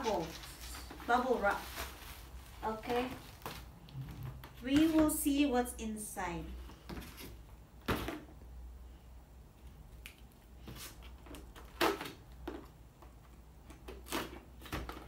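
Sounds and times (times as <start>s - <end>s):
cardboard scraping and rustling: 0.0s - 5.1s.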